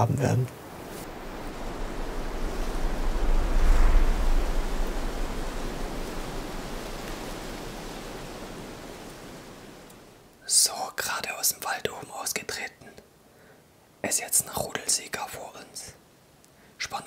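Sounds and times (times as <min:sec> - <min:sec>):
wind buffeting microphone: 0:00.6 - 0:10.2
wind rushing: 0:00.6 - 0:10.3.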